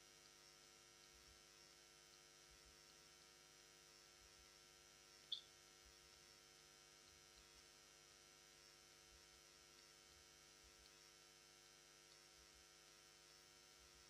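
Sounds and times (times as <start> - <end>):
faint electrical hum: 0.0 - 14.0
high-pitched tick: 5.3 - 5.5.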